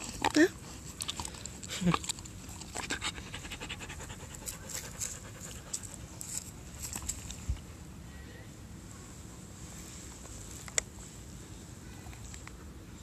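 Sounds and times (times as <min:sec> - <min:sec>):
dog panting: 0:02.6 - 0:07.0.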